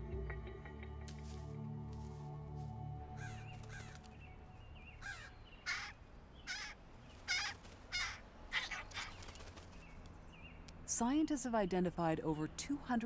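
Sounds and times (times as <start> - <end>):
soft background music: 0.0 - 5.8, 9.2 - 13.0
crow cawing: 3.2 - 4.1, 5.0 - 9.2.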